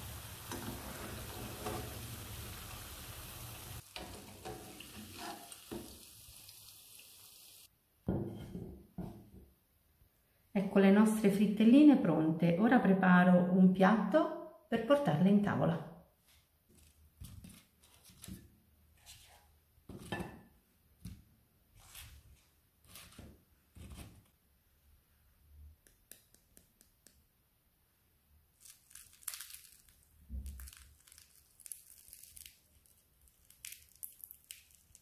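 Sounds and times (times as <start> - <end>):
crisp crust tearing crackle: 28.6 - 35.0.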